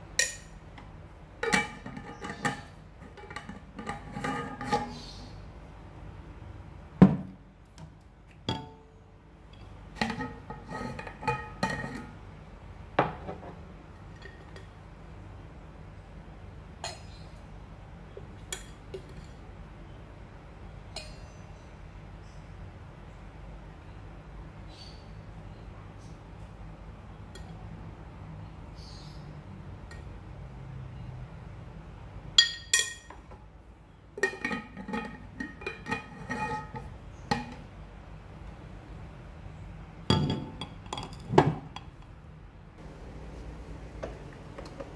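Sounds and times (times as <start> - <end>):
spoon clinking against glass jars: 32.4 - 33.2.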